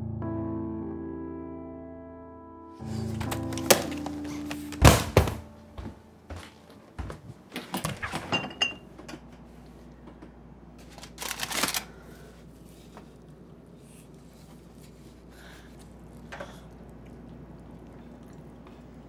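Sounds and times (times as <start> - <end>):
containers clinking and clattering: 8.1 - 8.9.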